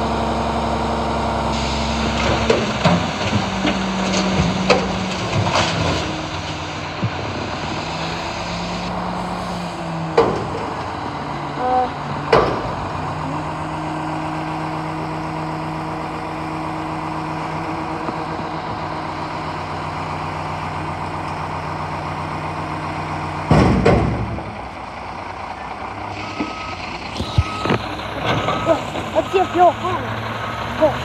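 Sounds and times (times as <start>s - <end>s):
garbage truck diesel engine: 0.0s - 31.0s
dumpster clattering crash: 2.0s - 7.6s, 10.0s - 11.0s, 12.3s - 13.1s, 23.1s - 24.8s, 28.0s - 29.2s
reversing beeper: 25.6s - 31.0s.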